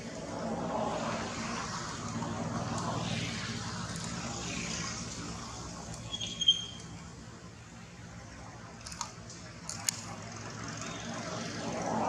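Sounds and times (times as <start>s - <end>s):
low mechanical drone: 0.0s - 12.0s
sharp high-pitched chirp: 6.1s - 6.8s.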